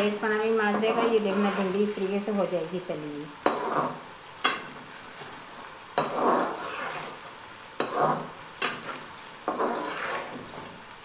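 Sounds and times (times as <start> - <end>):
okra sizzling in oil: 0.0 - 11.0
metal spoon stirring: 3.4 - 4.7, 6.0 - 7.2, 7.8 - 10.6.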